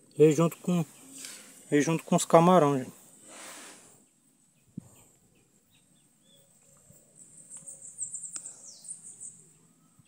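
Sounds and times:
animal chirping: 5.4s - 10.0s.

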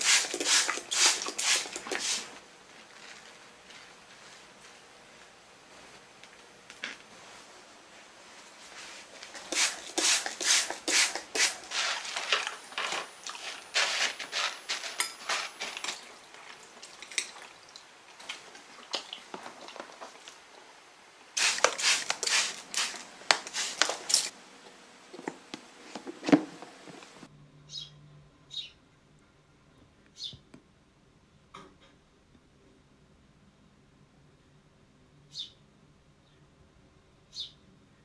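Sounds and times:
paper towel rustling: 0.0s - 2.3s, 7.2s - 16.6s, 21.4s - 24.3s.

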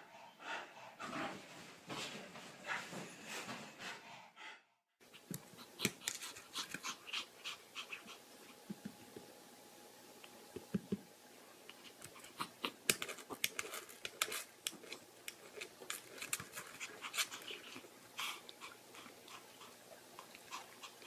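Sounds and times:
small dogs panting: 0.0s - 8.8s, 16.1s - 21.0s.

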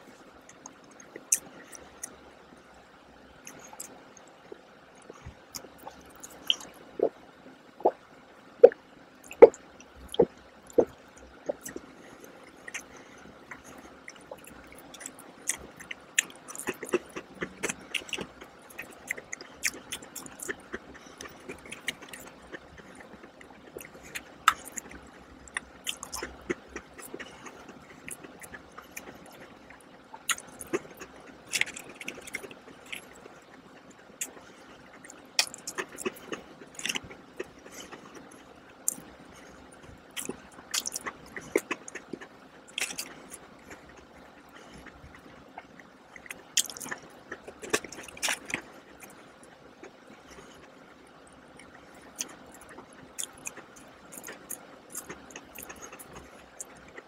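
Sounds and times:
crunchy cookies being chewed: 0.0s - 2.3s, 3.3s - 7.2s, 8.6s - 57.0s
gulping a drink: 8.6s - 33.4s.

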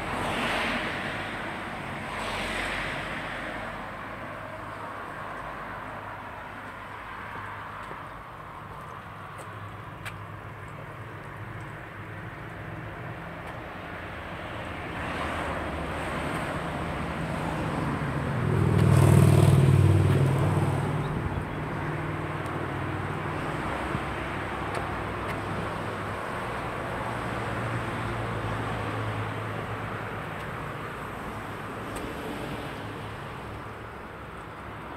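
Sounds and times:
road background noise: 0.0s - 34.9s
vehicle passing by: 15.0s - 24.7s.

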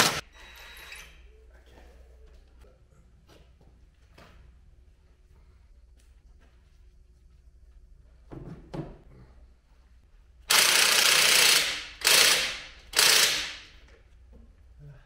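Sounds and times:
impact wrench hammering: 0.0s - 0.2s, 10.5s - 13.8s.

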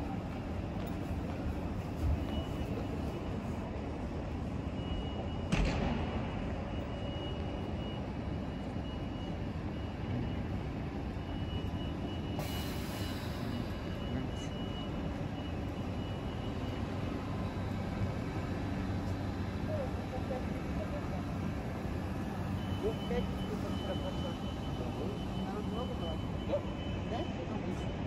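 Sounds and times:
faint high whine: 0.0s - 28.0s
train equipment humming: 9.5s - 28.0s.

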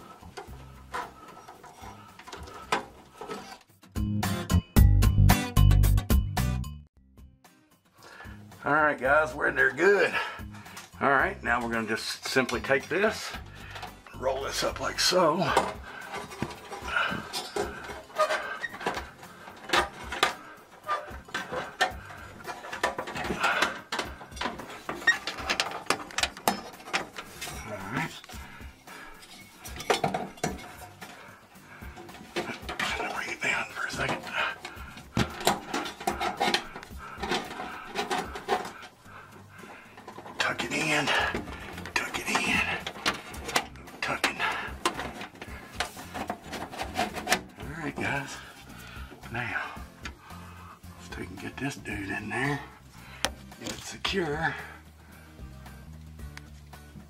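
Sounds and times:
clicks and knocks against metal: 0.0s - 3.7s, 12.4s - 48.7s
wires rustling: 0.0s - 3.8s, 9.0s - 55.2s.

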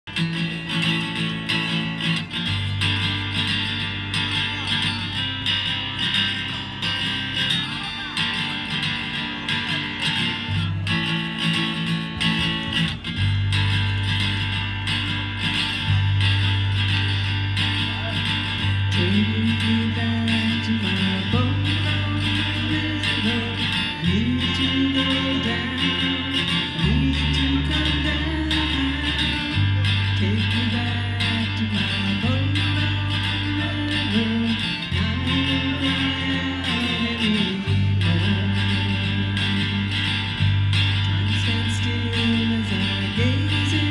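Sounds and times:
acoustic guitar strumming: 0.0s - 43.9s
low bass line: 0.0s - 43.9s
person singing: 17.7s - 43.9s.

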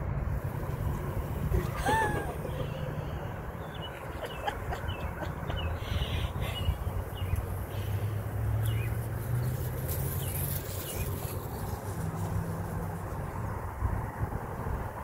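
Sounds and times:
birds chirping: 1.3s - 11.4s.

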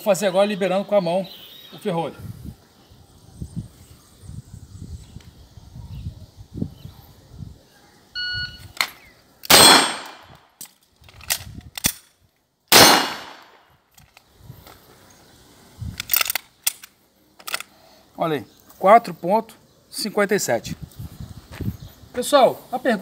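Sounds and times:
gun handling clicks: 8.6s - 14.8s, 15.9s - 17.8s
pistol slide clicks: 8.8s - 12.1s, 16.0s - 17.7s
pistol shots: 9.5s - 10.4s, 12.7s - 13.6s.

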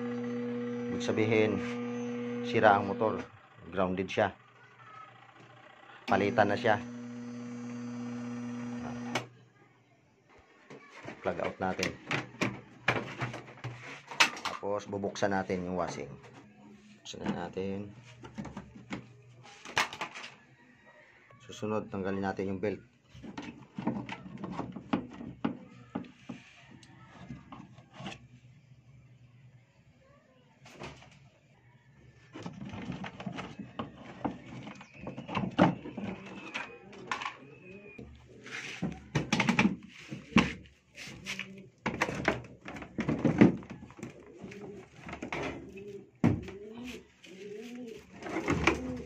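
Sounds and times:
bird cooing: 35.8s - 38.0s, 44.0s - 49.0s.

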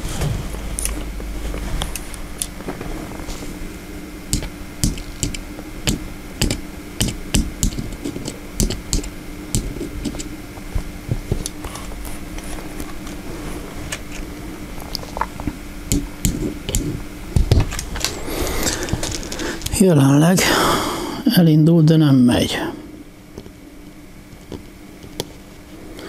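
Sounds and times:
electric motor humming: 0.0s - 20.7s.

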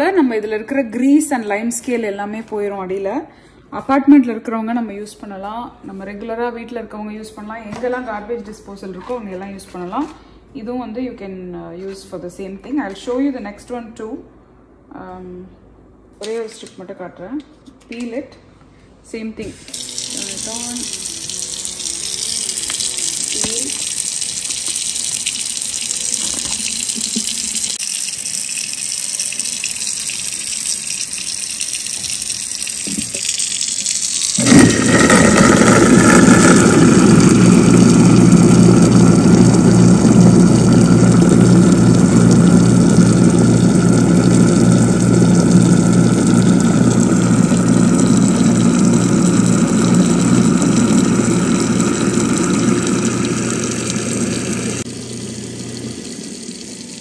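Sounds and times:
garbage disposal humming: 19.4s - 57.0s
tap water running into sink: 19.5s - 57.0s.

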